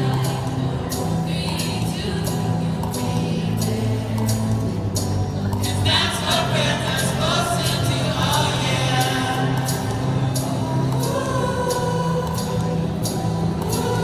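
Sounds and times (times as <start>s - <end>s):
gospel choir singing: 5.9s - 14.0s.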